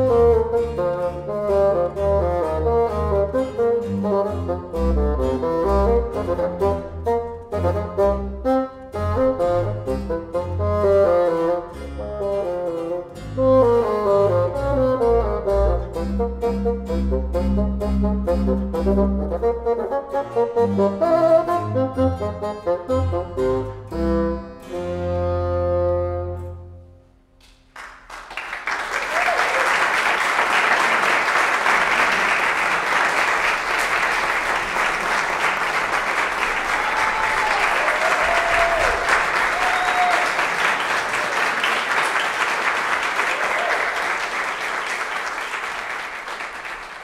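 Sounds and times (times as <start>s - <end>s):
bassoon harpsichord and bass chord: 0.0s - 26.8s
audience applauding: 27.5s - 47.0s.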